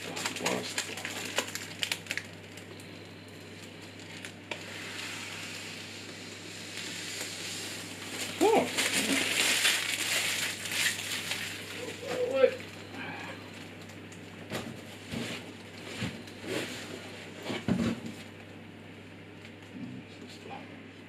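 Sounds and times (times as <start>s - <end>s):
plastic film crinkling: 0.0s - 2.7s, 3.4s - 4.7s, 6.6s - 12.8s.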